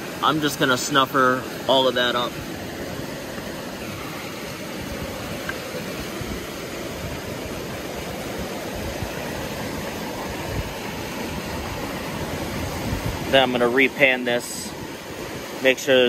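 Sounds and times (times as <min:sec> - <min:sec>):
stream water flowing: 0:00.0 - 0:16.0.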